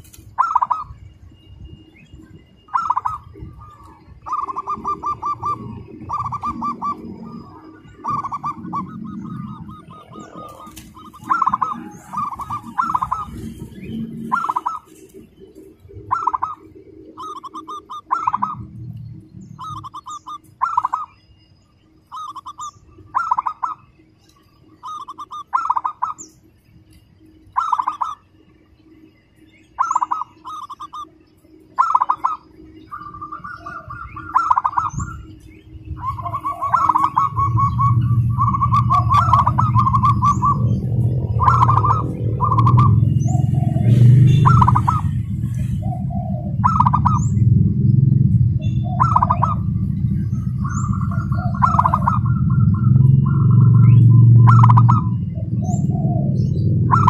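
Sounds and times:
dove cooing in trills: 0.0s - 1.1s, 1.7s - 21.3s, 21.9s - 24.0s, 24.6s - 26.3s, 27.2s - 29.0s, 29.6s - 57.0s
small birds chirping: 0.0s - 57.0s
low rumble: 0.9s - 21.6s, 32.3s - 57.0s.

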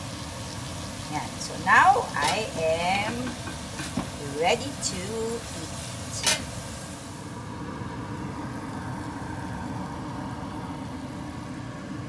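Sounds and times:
low machine-like rumble: 0.2s - 12.0s
faint hum: 4.2s - 12.0s.

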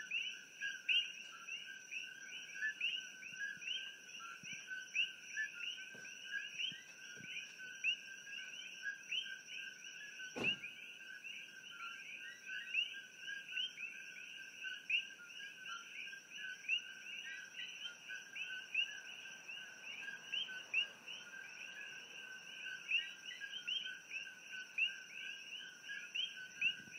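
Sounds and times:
frogs chirping in chorus: 0.0s - 26.9s
sharp knock: 10.4s - 10.6s.

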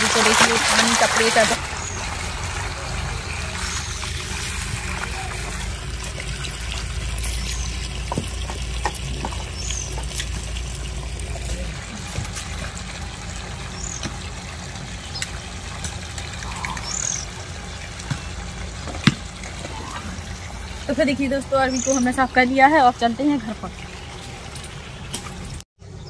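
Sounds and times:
water trickling and splashing: 0.0s - 25.6s
bird chirps: 16.4s - 17.4s, 21.6s - 22.3s.

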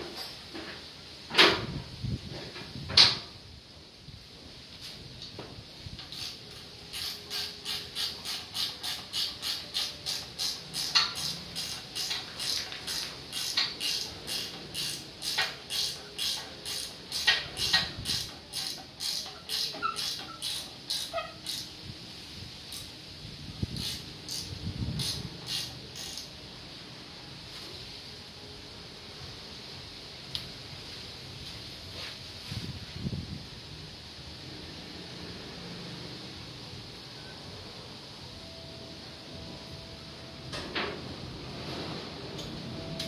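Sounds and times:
ratchet wrench clicking: 6.0s - 21.8s, 22.7s - 22.9s, 23.8s - 26.3s.

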